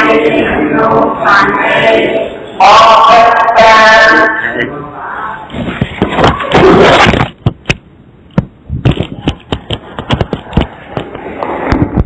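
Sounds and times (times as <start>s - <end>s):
sharp knocks and clicks: 7.1s - 12.0s.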